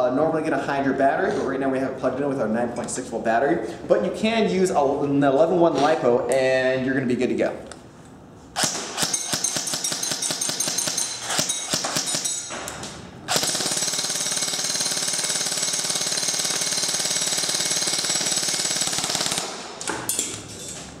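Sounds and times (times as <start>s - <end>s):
airsoft gun firing: 8.6s - 12.3s, 13.3s - 19.9s.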